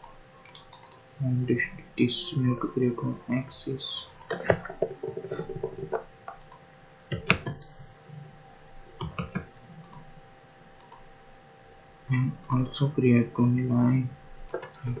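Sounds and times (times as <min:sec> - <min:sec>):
computer mouse clicking: 0:00.0 - 0:01.0, 0:04.0 - 0:07.7, 0:09.0 - 0:10.1, 0:10.8 - 0:11.1, 0:14.5 - 0:15.0
faint electrical hum: 0:00.0 - 0:15.0.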